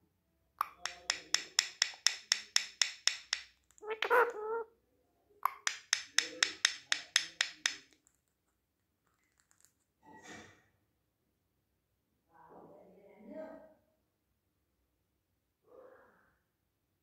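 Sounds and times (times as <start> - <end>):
parrot rapid sharp clicks: 0.6 - 4.2, 5.5 - 8.0
soft breathy sound: 15.7 - 16.5.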